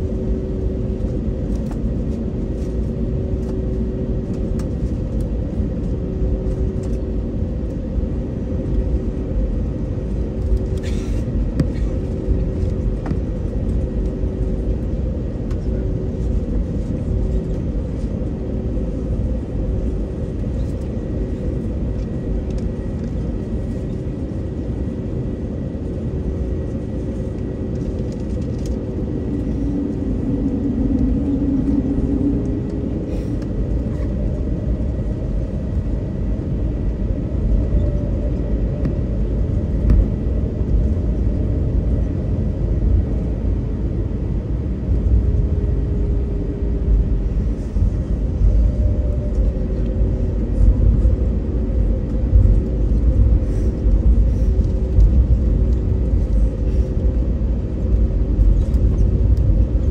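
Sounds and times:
aircraft engine rumble: 0.0s - 59.9s
constant cabin hum: 0.0s - 59.9s.

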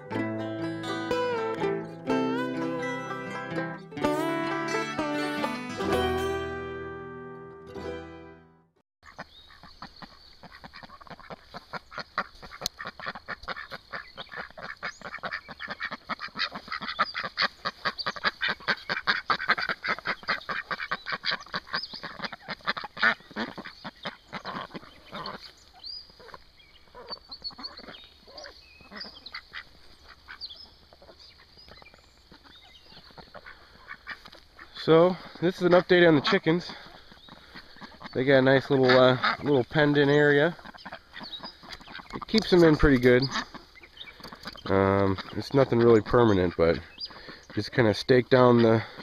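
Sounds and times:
high chirps: 0.0s - 8.3s
chickens clucking and squawking: 9.0s - 49.0s.

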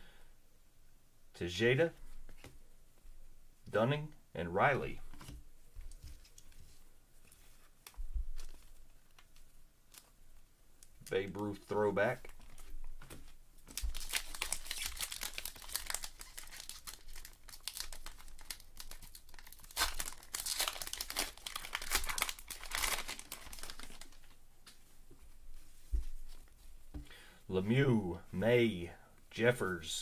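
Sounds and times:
wrapper crinkling and tearing: 13.7s - 24.3s.

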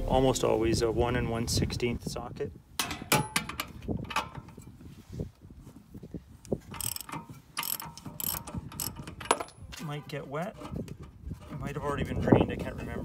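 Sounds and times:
ratchet wrench clicking: 6.7s - 9.6s.

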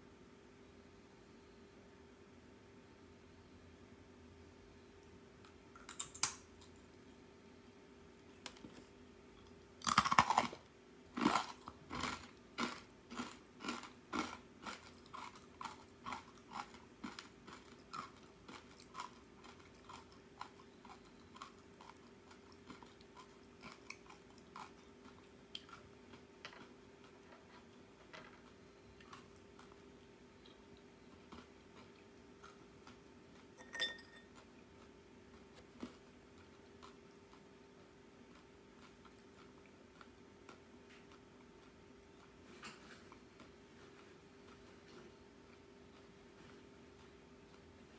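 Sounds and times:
rice cracker crunching: 9.8s - 10.6s, 11.2s - 27.6s
short ringing clink: 33.6s - 34.3s.

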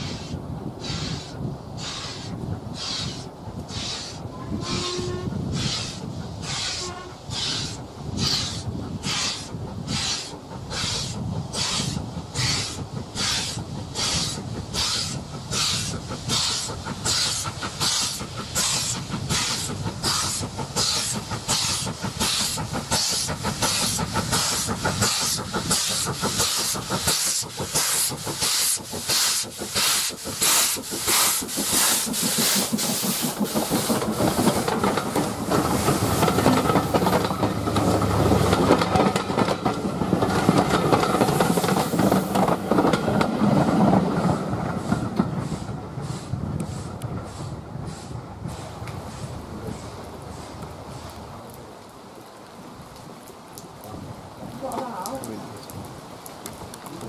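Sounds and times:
steam hissing: 0.0s - 51.5s
steam locomotive chuffing: 0.0s - 51.8s
train coaches rumbling on rails: 0.0s - 57.0s.

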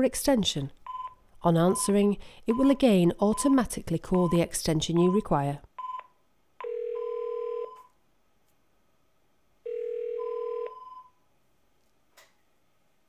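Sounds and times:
phone ringback tone: 6.6s - 7.9s, 9.7s - 11.2s.

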